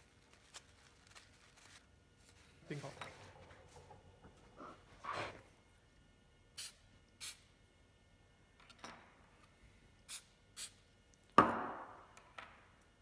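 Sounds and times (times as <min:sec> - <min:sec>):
aerosol can spritzes: 0:06.6 - 0:07.5, 0:10.1 - 0:10.8
loud sharp knock: 0:11.4 - 0:12.0.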